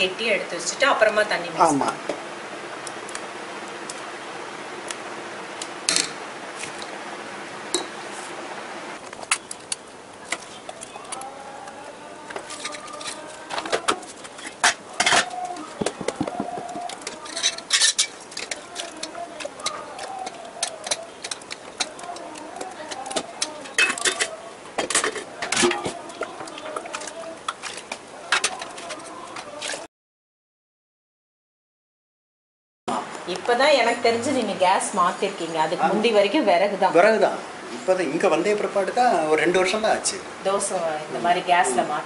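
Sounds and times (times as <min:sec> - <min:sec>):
steady hum: 0:00.0 - 0:26.7
steel utensils clinking and scraping: 0:12.3 - 0:15.6, 0:16.7 - 0:29.8.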